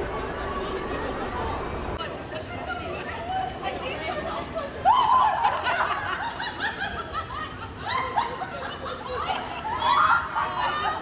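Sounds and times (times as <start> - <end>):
women laughing: 5.0 - 11.0.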